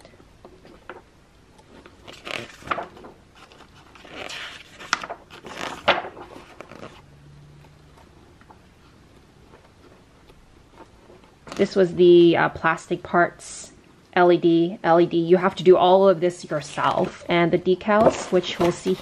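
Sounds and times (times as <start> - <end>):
paper pages being turned: 1.6 - 7.0, 7.6 - 11.8, 16.6 - 17.3, 18.0 - 19.0.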